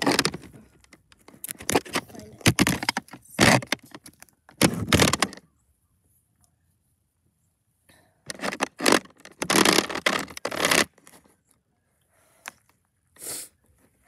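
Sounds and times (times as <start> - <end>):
plastic toy scraping on concrete: 0.0 - 0.6, 8.3 - 11.2
handling noise: 0.0 - 5.4, 8.3 - 11.3.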